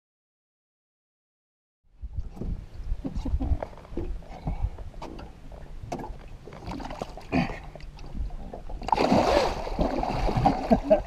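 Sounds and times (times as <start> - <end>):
knocks and thumps on boat deck: 2.2 - 7.1
water splashing: 5.0 - 11.0.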